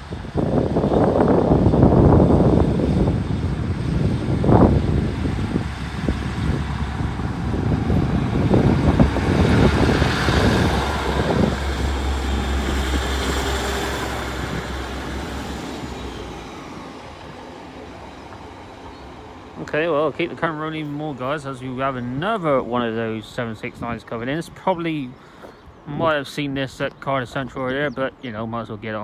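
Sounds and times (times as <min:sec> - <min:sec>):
diesel train passing: 0:00.0 - 0:29.0.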